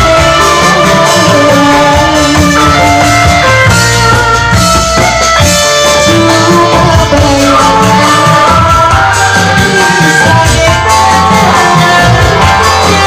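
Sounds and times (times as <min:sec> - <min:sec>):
live band with drums and melody: 0:00.0 - 0:13.0
woman singing into a microphone: 0:00.0 - 0:13.0.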